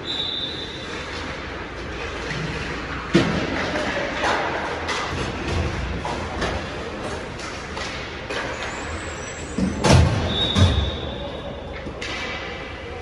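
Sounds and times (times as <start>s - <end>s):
skates scraping on ice: 0.5s - 10.8s
sticks and pucks clacking: 0.9s - 10.0s, 11.7s - 13.0s.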